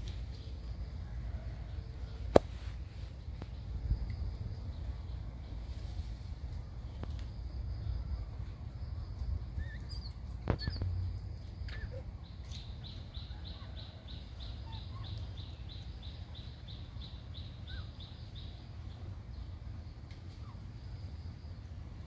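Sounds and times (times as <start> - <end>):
steady low rumble: 0.0 - 13.3
faint short squeaks: 9.6 - 11.1.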